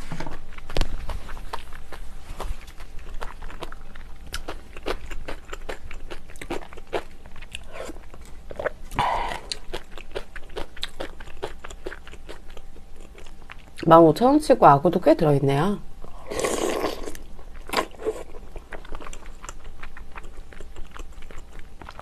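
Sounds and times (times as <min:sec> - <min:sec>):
person chewing wetly: 0:00.3 - 0:13.9, 0:16.3 - 0:22.0.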